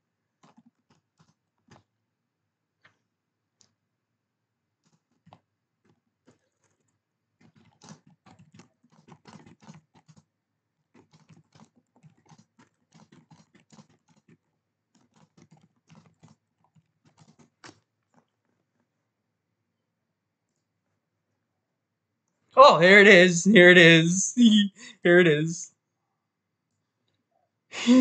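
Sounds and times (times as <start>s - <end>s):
typing on computer keyboard: 0.4s - 1.9s, 4.8s - 5.4s, 6.2s - 10.3s, 10.9s - 18.4s.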